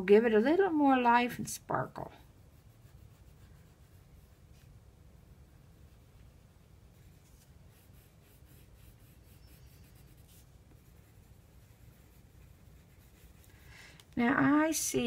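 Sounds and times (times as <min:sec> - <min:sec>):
pencil scratching on paper: 0:02.4 - 0:04.7, 0:06.9 - 0:13.7.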